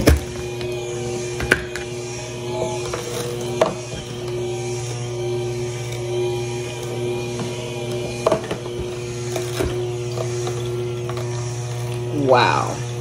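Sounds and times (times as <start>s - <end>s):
electric juicer motor humming: 0.0s - 13.0s.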